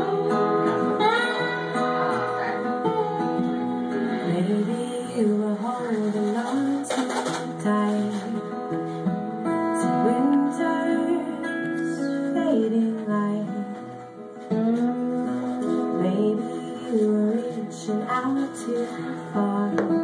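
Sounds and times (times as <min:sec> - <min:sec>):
acoustic guitars playing: 0:00.0 - 0:20.0.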